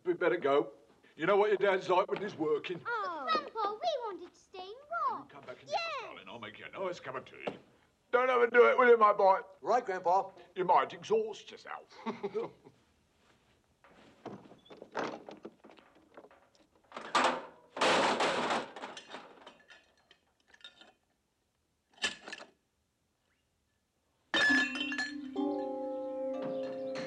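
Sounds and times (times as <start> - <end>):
clattering crash: 14.4 - 21.0, 24.4 - 25.2
metal car parts clanking: 14.8 - 21.1, 24.4 - 25.7
music with held chords: 24.8 - 27.0.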